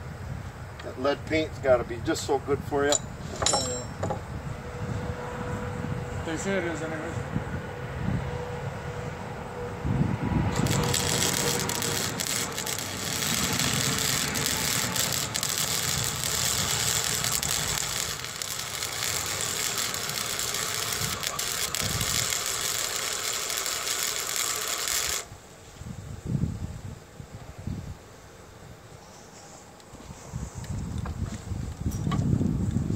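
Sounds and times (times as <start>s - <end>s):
arc welding crackling sizzle: 10.5s - 25.4s.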